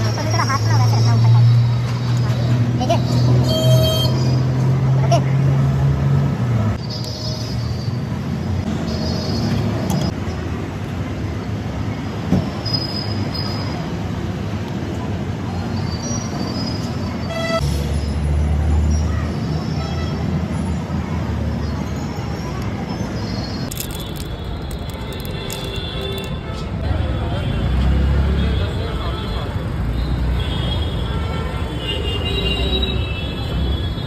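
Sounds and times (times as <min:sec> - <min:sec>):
background hubbub: 0:11.0 - 0:34.0
traffic rumble: 0:13.2 - 0:34.0.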